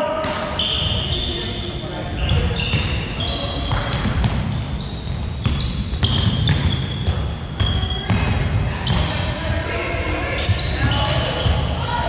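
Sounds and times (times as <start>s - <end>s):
noisy gym echo: 0.0s - 12.0s
sneakers squeaking: 0.2s - 12.0s
basketball bouncing on floor: 3.7s - 4.6s, 5.4s - 9.2s.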